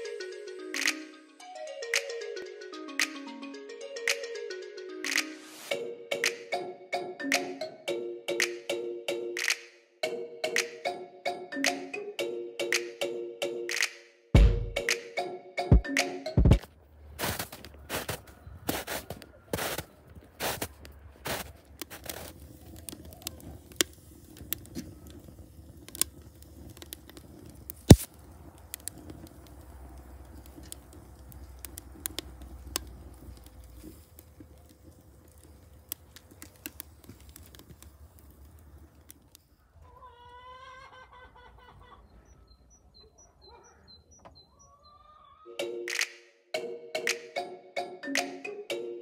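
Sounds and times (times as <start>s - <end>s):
wood fire crackling and popping: 16.4s - 39.6s
footsteps crunching in snow: 17.1s - 22.4s
chicken calling: 39.6s - 45.6s
small bird chirping: 41.8s - 45.4s.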